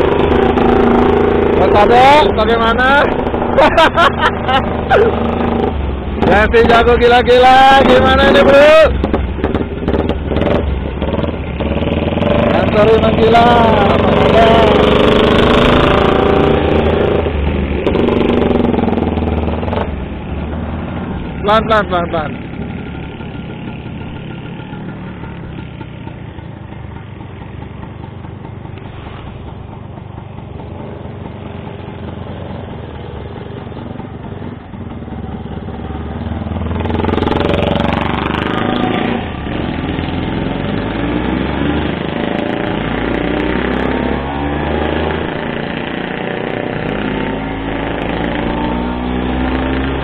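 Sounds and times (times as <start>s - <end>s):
motorcycle engines running: 0.0s - 50.0s
motorcycle passing close: 0.0s - 50.0s.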